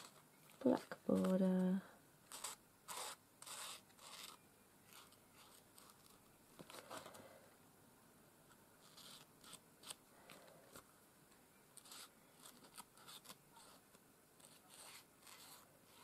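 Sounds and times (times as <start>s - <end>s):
marker scratching on card: 2.3s - 6.2s, 8.8s - 10.0s, 11.8s - 16.0s.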